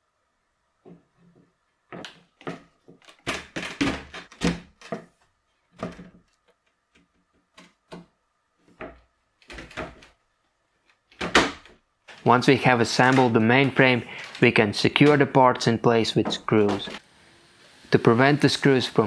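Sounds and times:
wooden chair parts knocking: 0.8s - 10.2s.

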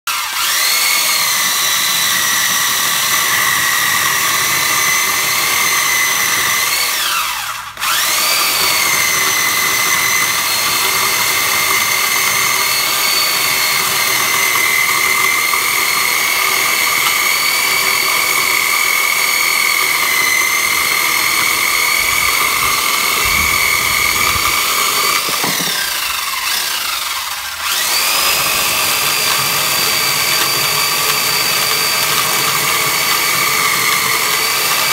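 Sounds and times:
electric chainsaw whining: 0.0s - 34.9s
chain rasping through wood: 7.9s - 26.6s.

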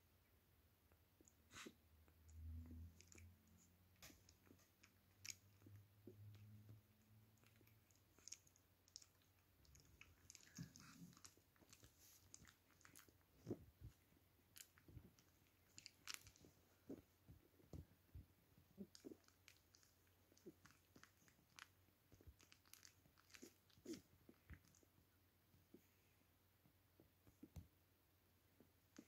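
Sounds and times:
faint low hum: 0.0s - 29.0s
puppy mouth clicks and smacks: 2.3s - 17.1s, 18.8s - 25.0s.

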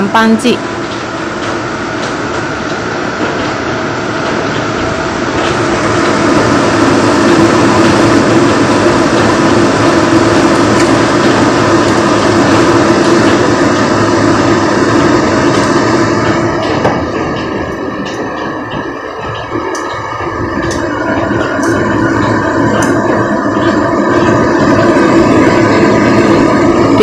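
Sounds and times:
kitchen fan whirring: 0.0s - 27.0s.

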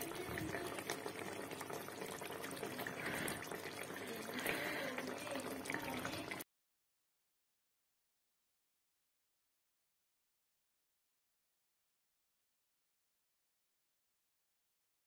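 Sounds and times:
curry bubbling in a pan: 0.0s - 6.5s.

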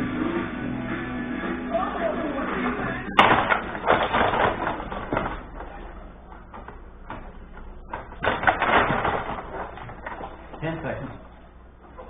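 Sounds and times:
plastic players and puck clacking: 3.1s - 12.0s.

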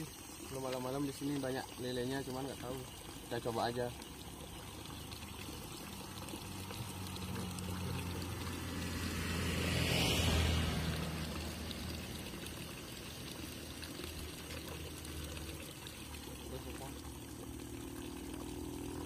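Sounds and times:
motorbike engine passing: 6.5s - 12.6s.

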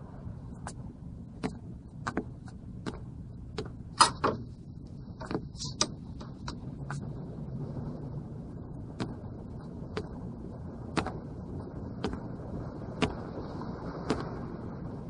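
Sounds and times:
irregular taps and clicks: 1.4s - 4.4s, 11.0s - 11.2s, 12.0s - 12.2s.

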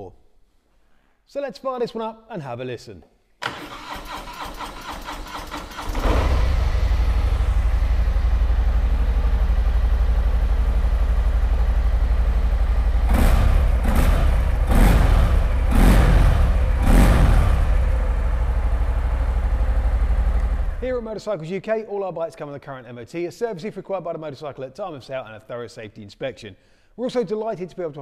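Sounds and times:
starter motor cranking: 3.4s - 6.6s
engine throttle blips: 4.8s - 21.0s
motorcycle engine idling: 5.2s - 21.0s.

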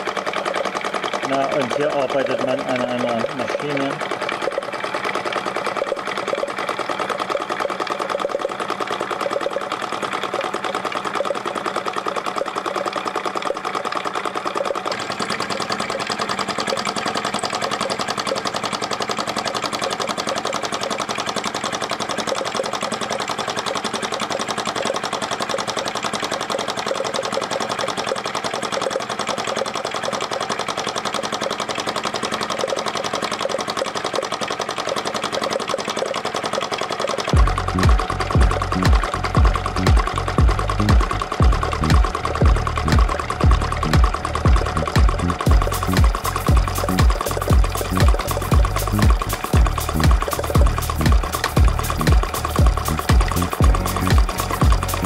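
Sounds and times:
model engine mechanical clatter: 0.0s - 55.0s
deeper hum: 37.4s - 55.0s.

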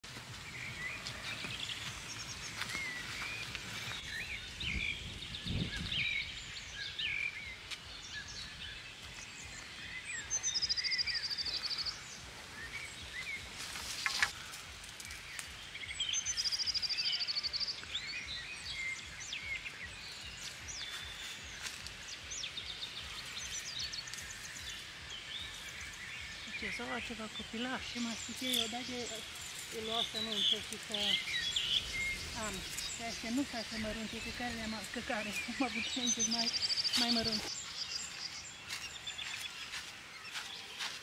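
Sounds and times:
small birds chirping: 0.0s - 41.0s.

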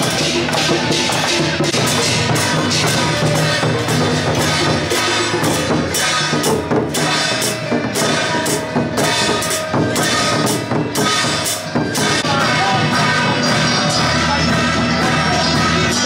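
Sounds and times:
drum kit beat: 0.0s - 16.0s
loud music: 0.0s - 16.0s.

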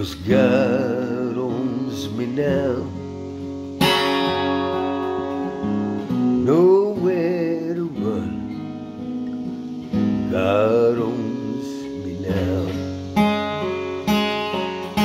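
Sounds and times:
man's wordless singing: 0.0s - 3.2s, 6.4s - 8.7s, 10.1s - 13.2s
acoustic guitar strummed chords: 0.0s - 15.0s.

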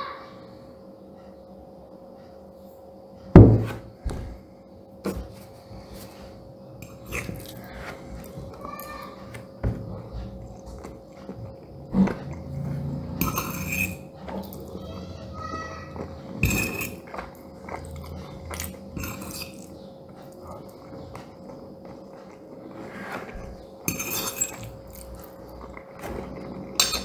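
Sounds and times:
soft chewing: 5.4s - 14.8s, 15.9s - 27.0s.

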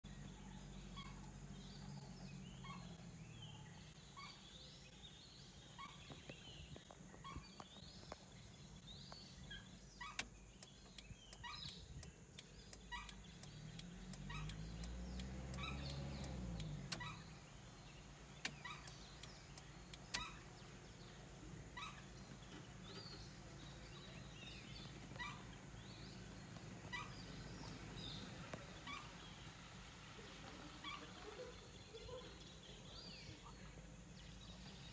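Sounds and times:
sharp clicks: 10.1s - 17.3s, 18.4s - 20.5s
bird call: 18.3s - 21.1s.

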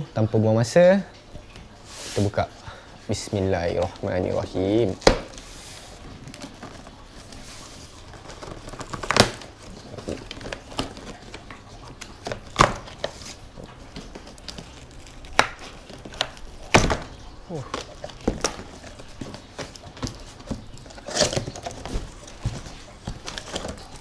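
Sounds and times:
cardboard tearing and rustling: 4.2s - 24.0s
sharp cardboard rips: 6.2s - 24.0s.

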